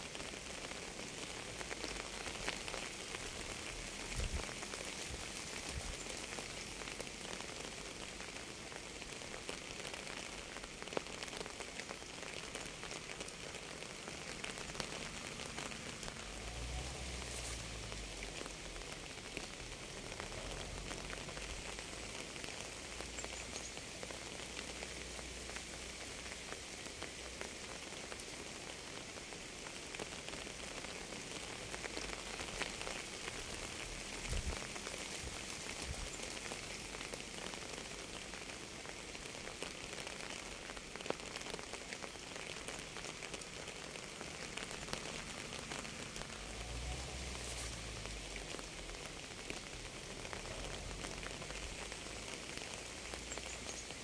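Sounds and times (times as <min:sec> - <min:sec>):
rain falling: 0:00.0 - 0:54.0.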